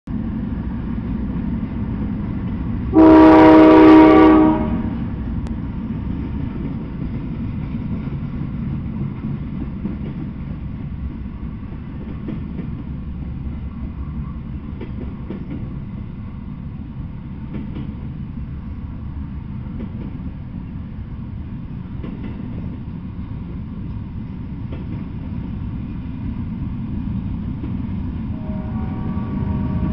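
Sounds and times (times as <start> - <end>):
freight train wheels rumbling: 0.1 - 29.9
locomotive air horn blast: 2.9 - 5.0, 28.3 - 29.9.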